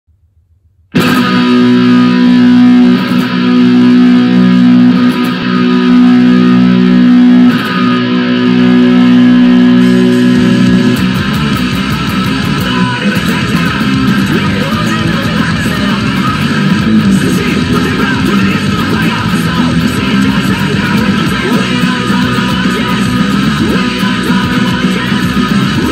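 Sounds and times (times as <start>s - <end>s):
electric guitar chords ringing: 0.9s - 25.9s
fast electric guitar strumming: 0.9s - 25.9s.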